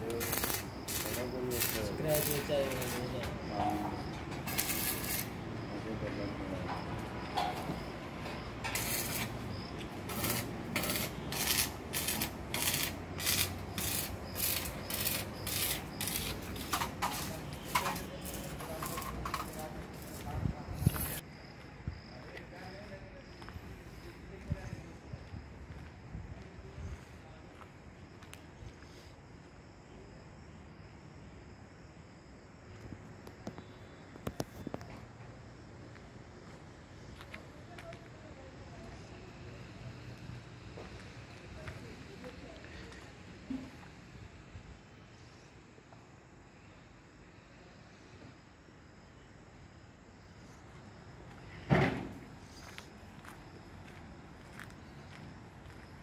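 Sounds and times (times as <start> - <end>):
insects chirring: 0.0 - 37.7, 38.4 - 56.0
footsteps on sandy ground: 52.5 - 56.0.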